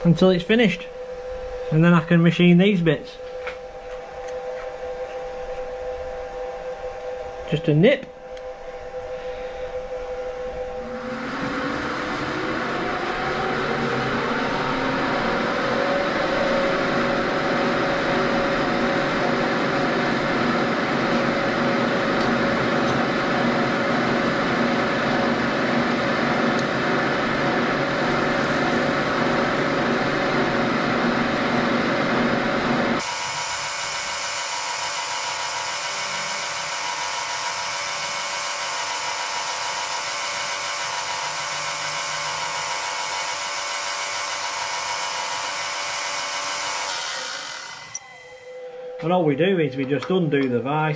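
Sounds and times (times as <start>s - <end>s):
milling machine spindle whine: 0.0s - 50.9s
cutter milling metal bar: 33.0s - 48.2s.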